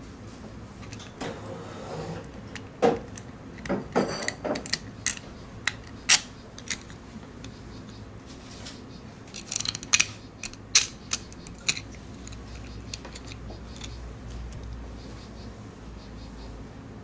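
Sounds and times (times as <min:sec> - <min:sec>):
robot parts clicking and knocking: 0:02.4 - 0:07.6, 0:09.3 - 0:14.7.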